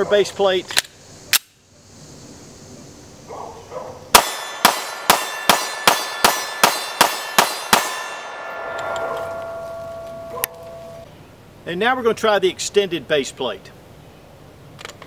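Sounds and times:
pistol shots: 4.1s - 9.4s
metallic clang from steel targets: 4.2s - 11.0s.

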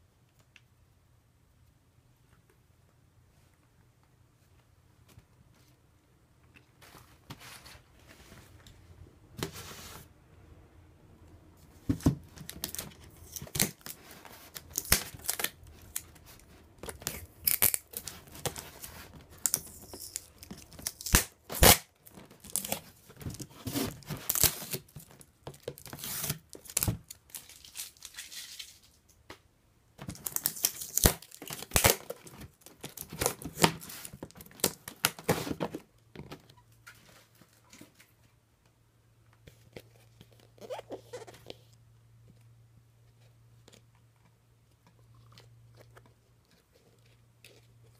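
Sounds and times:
tape ripping and crinkling: 12.0s - 29.0s, 30.0s - 35.8s.

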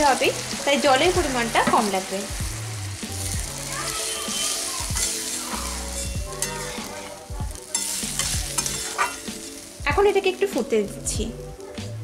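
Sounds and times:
background music with bass notes: 0.0s - 12.0s
gravy sizzling in a hot pan: 0.0s - 12.0s
metal spatula stirring: 3.0s - 10.6s.

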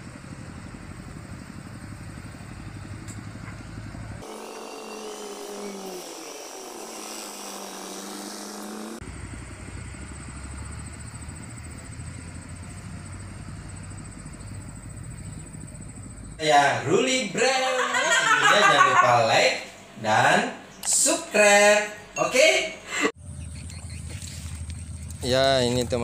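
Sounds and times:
engine low rumble: 0.0s - 4.3s, 9.0s - 17.0s, 23.1s - 26.0s.

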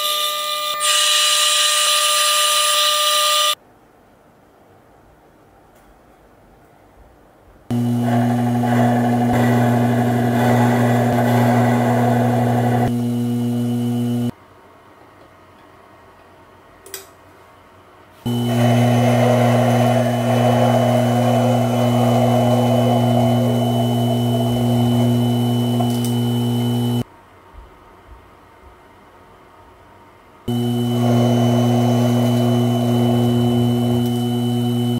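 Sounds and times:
metal lathe humming: 7.7s - 14.3s, 18.3s - 27.0s, 30.5s - 34.9s.

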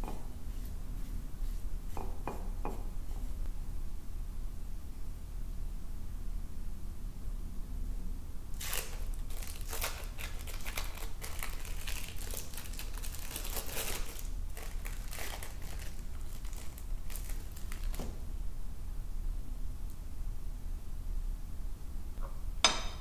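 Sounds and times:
wrapping crinkling: 8.5s - 18.2s.

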